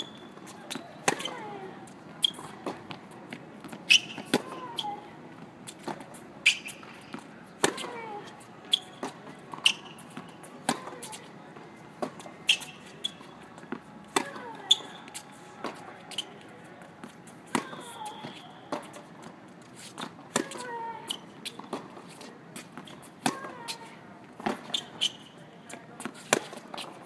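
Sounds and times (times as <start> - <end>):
tennis balls struck by rackets: 0.0 - 19.3, 19.9 - 20.8, 21.5 - 23.8, 24.4 - 27.0.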